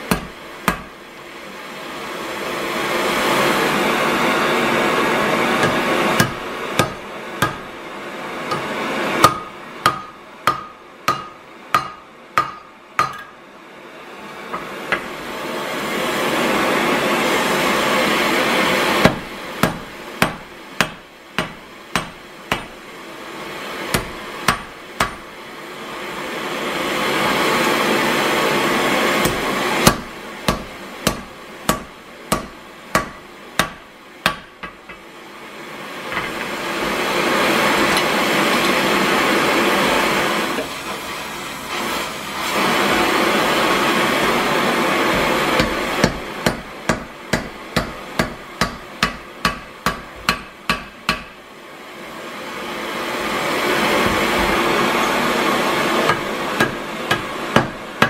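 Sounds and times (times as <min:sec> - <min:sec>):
hammer striking iron on anvil: 0:00.0 - 0:01.0, 0:05.6 - 0:07.7, 0:08.5 - 0:13.4, 0:19.0 - 0:22.8, 0:23.9 - 0:25.3, 0:29.2 - 0:35.0, 0:45.6 - 0:51.4, 0:56.1 - 0:57.8.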